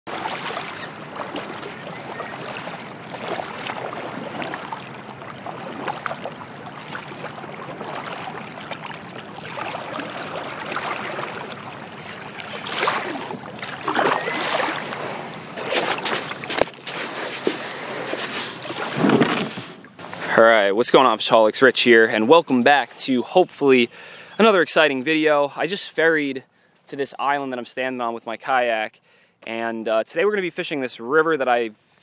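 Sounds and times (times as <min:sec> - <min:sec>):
small waves lapping on shore: 0:00.1 - 0:20.3
kayak paddling: 0:00.1 - 0:21.1
kayak hull running onto sand: 0:12.6 - 0:20.4.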